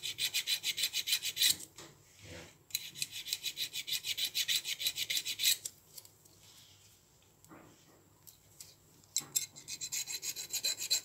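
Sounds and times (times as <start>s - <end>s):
hand file rasping on steel: 0.0s - 1.7s, 2.8s - 5.7s, 9.5s - 11.0s.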